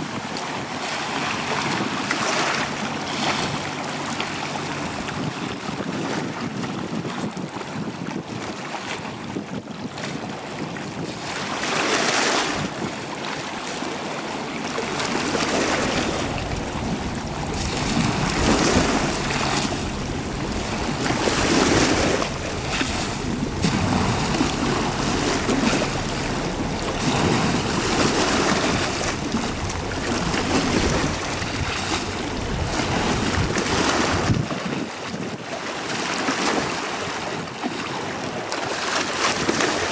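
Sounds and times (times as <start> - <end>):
ferry engine rumble: 0.0 - 6.0, 12.5 - 34.5
boat wake and choppy water: 0.0 - 39.9
wind buffeting microphone: 0.0 - 39.9.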